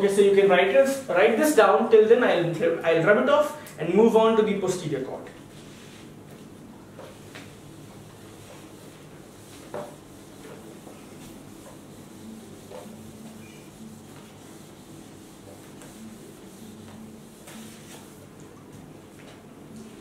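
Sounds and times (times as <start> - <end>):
eraser rubbing on whiteboard: 8.3 - 18.3.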